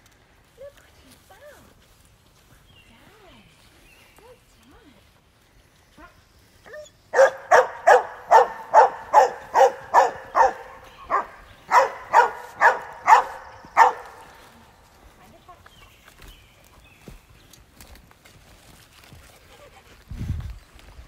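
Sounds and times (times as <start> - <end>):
small dog barking: 6.7 - 14.4.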